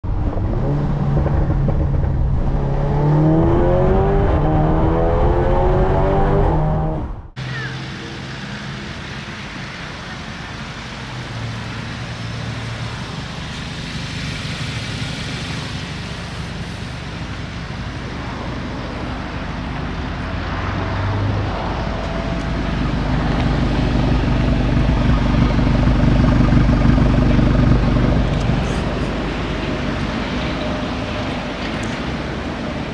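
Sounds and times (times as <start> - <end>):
car engine idling: 21.4 - 32.9.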